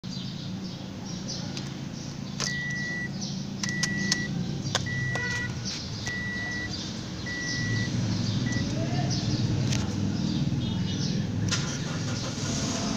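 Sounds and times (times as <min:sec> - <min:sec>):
key clicking into ignition: 0:02.4 - 0:02.9, 0:03.6 - 0:06.3
car warning chime beeps: 0:02.4 - 0:08.8.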